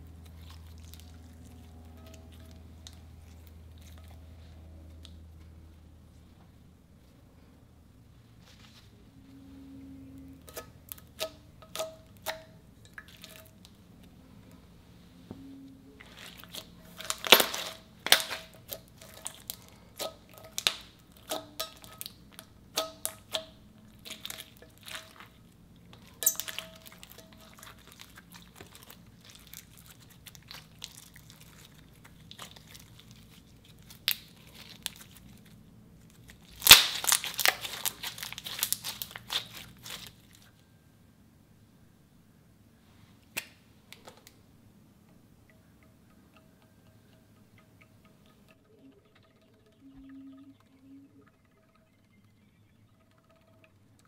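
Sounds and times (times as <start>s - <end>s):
slime squished with popping: 36.5s - 40.1s.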